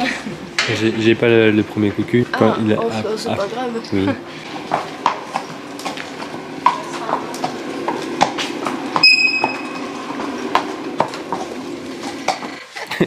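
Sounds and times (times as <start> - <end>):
horse hooves on pavement: 1.4 - 13.0
brief metallic ring: 9.0 - 9.8.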